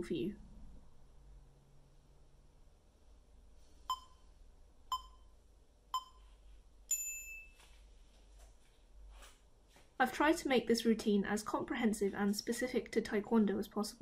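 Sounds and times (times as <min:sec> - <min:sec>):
short timer beeps: 0:03.9 - 0:04.3, 0:04.9 - 0:05.3, 0:05.9 - 0:06.2.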